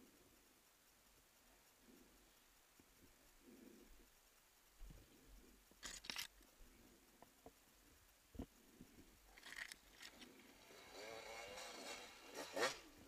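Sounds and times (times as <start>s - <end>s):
bicycle clicking: 9.2s - 13.0s.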